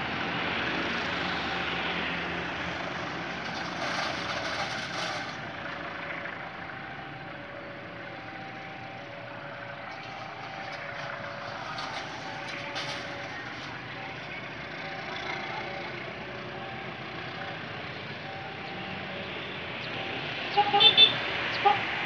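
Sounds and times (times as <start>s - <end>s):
diesel train pulling away: 0.0s - 22.0s.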